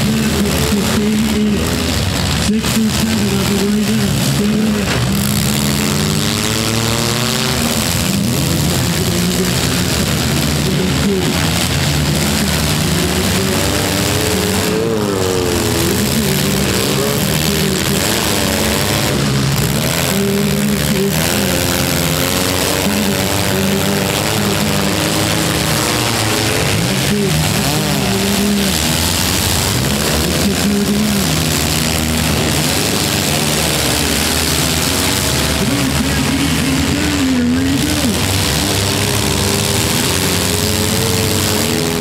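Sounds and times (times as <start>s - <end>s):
car engines revving: 0.0s - 42.0s.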